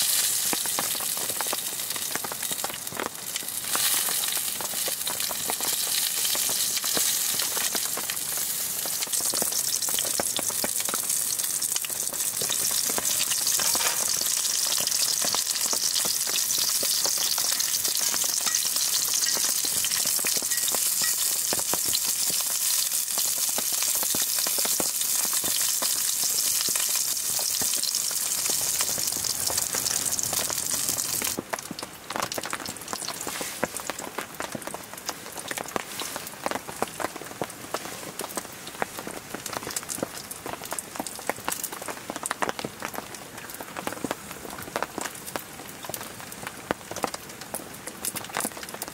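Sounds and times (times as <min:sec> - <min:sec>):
meat sizzling in a pan: 0:00.0 - 0:34.7.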